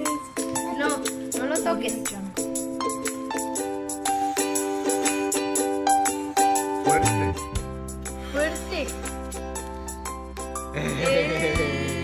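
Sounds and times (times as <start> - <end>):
plucked chords music: 4.8 - 8.2.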